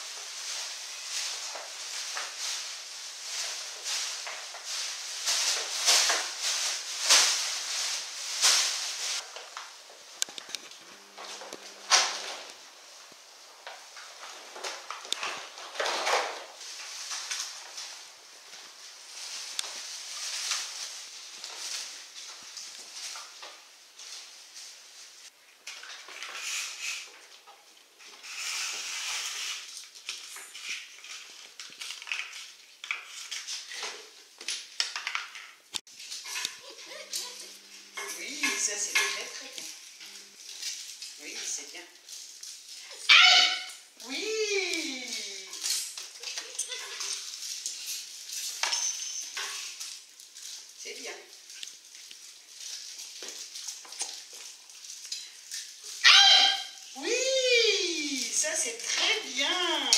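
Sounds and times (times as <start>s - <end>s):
plastic bag rustling swishes: 0.0s - 9.3s, 16.5s - 25.4s
plastic bag crinkling: 0.0s - 59.9s.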